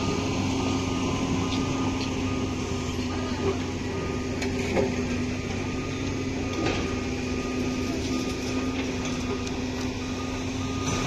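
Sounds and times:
heavy diesel machinery running: 0.0s - 11.0s
faint high beeping: 5.0s - 11.0s.

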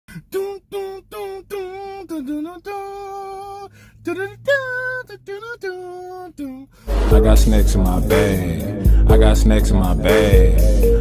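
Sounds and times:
person singing alone: 0.2s - 11.0s.

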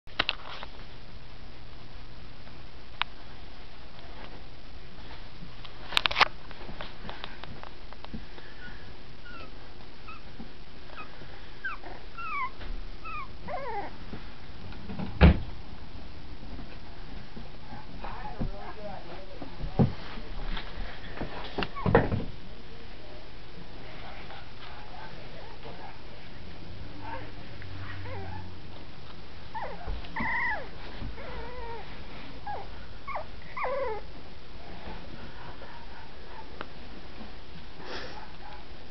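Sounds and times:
puppies whimpering: 8.6s - 9.5s, 10.1s - 10.3s, 11.0s - 14.0s, 29.5s - 34.1s.

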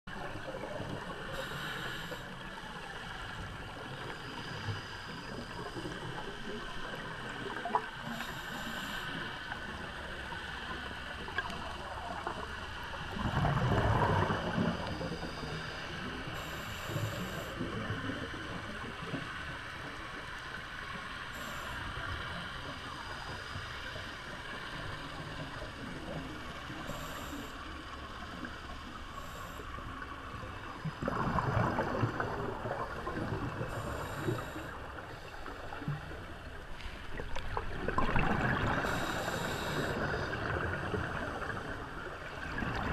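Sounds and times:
muffled underwater ambience: 0.1s - 42.9s
regulator exhaust bubbles gurgling: 11.2s - 15.4s, 29.2s - 35.1s.

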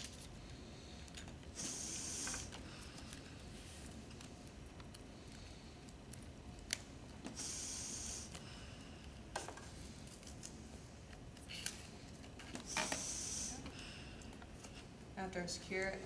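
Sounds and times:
air hissing through tube: 1.5s - 2.7s, 7.2s - 8.5s, 12.6s - 14.0s.

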